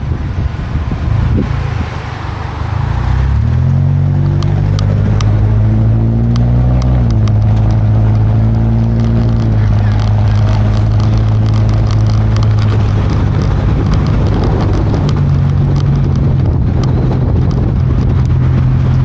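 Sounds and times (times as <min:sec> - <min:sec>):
pickup truck engine running: 0:00.0 - 0:19.0
wind rushing over microphone: 0:00.0 - 0:19.0
clicks and rattles: 0:04.2 - 0:19.0.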